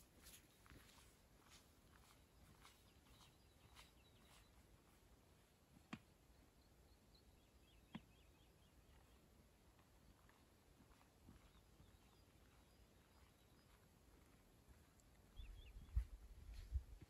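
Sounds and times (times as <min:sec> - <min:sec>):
faint bird chirps: 0:00.2 - 0:05.0, 0:11.4 - 0:13.8, 0:15.2 - 0:16.8.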